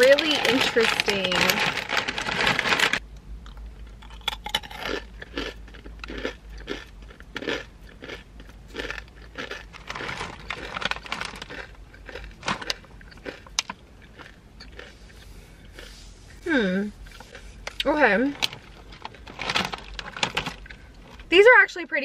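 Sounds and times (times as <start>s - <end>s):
crunchy snack being chewed: 0.0s - 16.0s.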